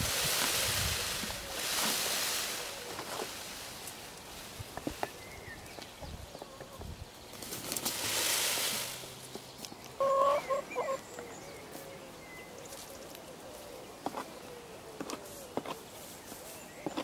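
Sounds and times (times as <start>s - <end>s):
peacock feathers rustling rattle: 0.0s - 6.0s, 7.2s - 9.9s.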